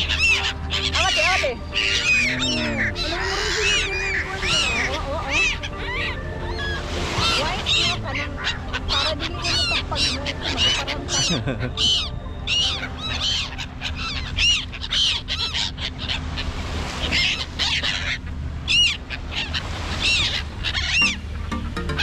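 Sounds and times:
gulls squawking: 0.0 - 22.0.

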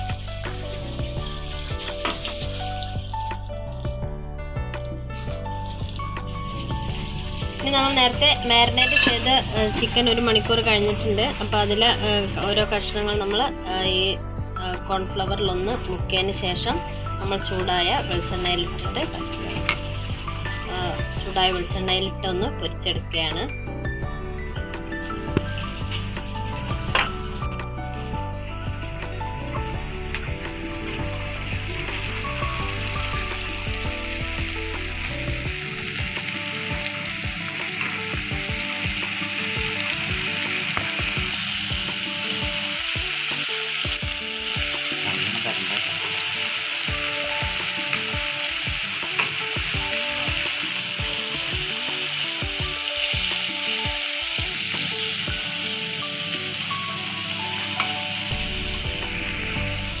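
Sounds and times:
chicken deep-frying sizzle: 0.0 - 4.1, 4.7 - 12.5, 16.7 - 21.0, 24.5 - 60.0
metal spoon stirring in wok: 8.8 - 9.3.

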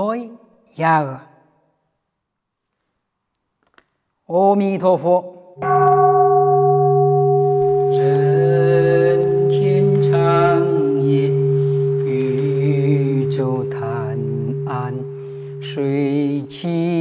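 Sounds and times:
steady ringing tone: 5.6 - 17.0
wavering melody: 5.6 - 17.0
low drone: 6.3 - 17.0.

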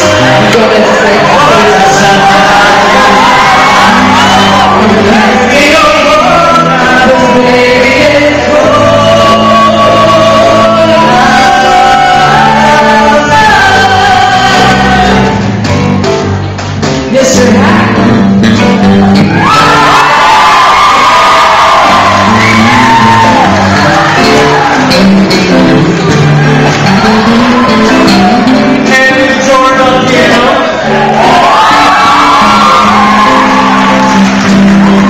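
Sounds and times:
people singing: 0.0 - 15.4
bass guitar: 0.0 - 35.0
drum kit: 0.0 - 35.0
electric guitar: 0.0 - 35.0.

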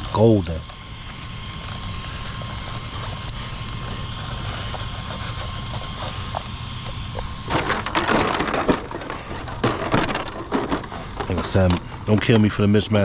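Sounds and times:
dirt and grit crunching: 0.0 - 13.0.

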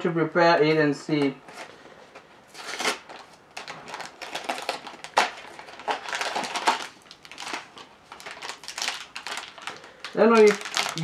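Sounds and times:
cardboard cracking: 2.5 - 11.0.

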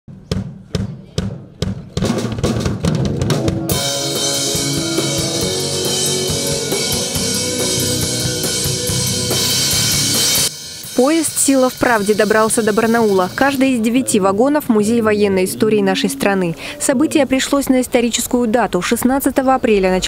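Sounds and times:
drum strokes: 0.1 - 13.8
rock band playing: 2.8 - 13.6
cymbals: 3.3 - 13.6.

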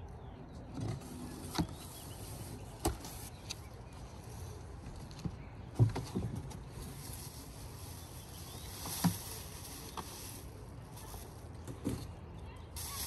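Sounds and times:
plastic wrapping rustling: 6.0 - 11.9.

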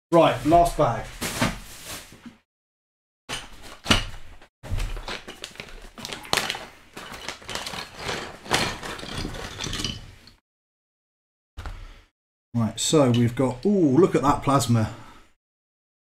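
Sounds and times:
plastic bag crinkling: 4.7 - 10.0.

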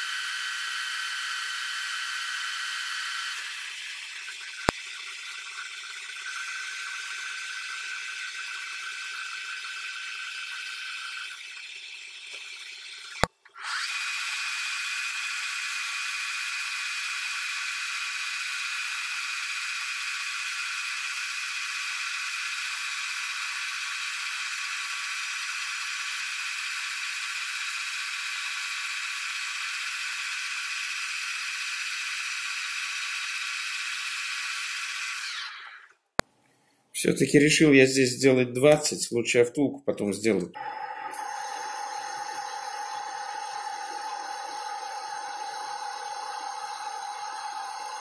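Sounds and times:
thin high whine: 40.5 - 48.0
metal lathe cutting hiss: 40.6 - 48.0.

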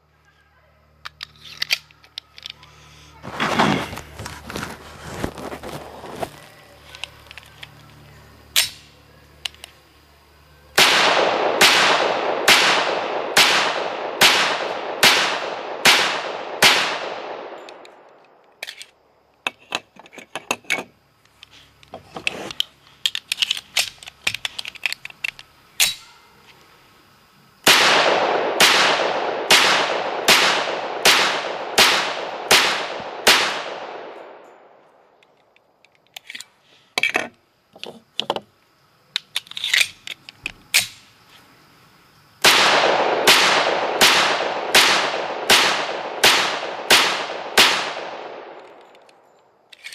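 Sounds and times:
pistol shots: 10.8 - 18.1, 27.7 - 34.4, 42.4 - 48.8.

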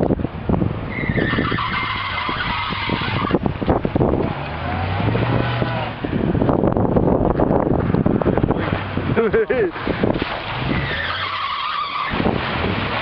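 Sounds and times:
pickup truck engine revving: 0.9 - 13.0
tyres spinning through mud: 7.8 - 13.0.

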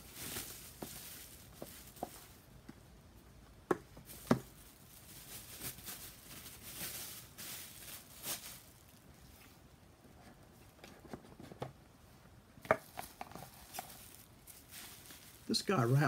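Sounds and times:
bubble wrap crinkling: 0.0 - 2.8, 3.7 - 9.6, 12.6 - 16.0.

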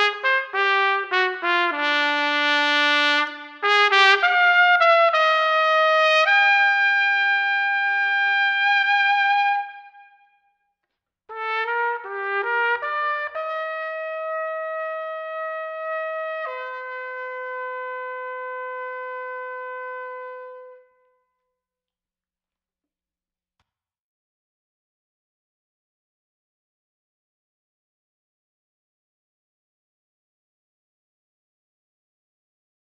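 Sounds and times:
trumpet playing slow melody: 0.0 - 10.3, 11.3 - 21.0.

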